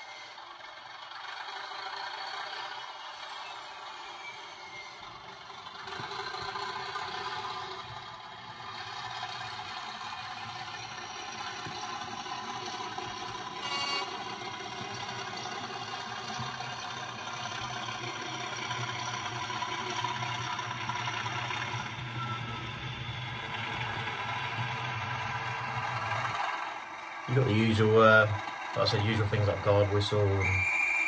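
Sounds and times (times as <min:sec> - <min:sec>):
model diesel engine sound: 0:00.0 - 0:31.0
model train running on track: 0:00.0 - 0:31.0
brief high tone: 0:13.6 - 0:14.2.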